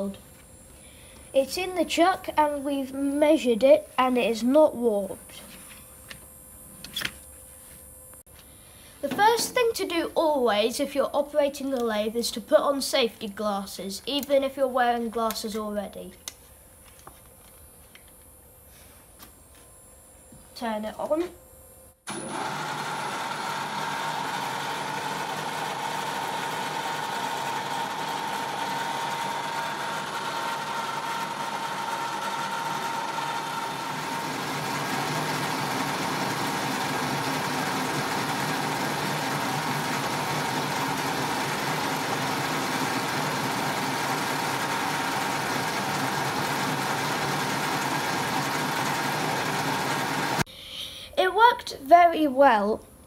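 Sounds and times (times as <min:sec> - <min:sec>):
metal lathe high whine: 0:22.1 - 0:50.4.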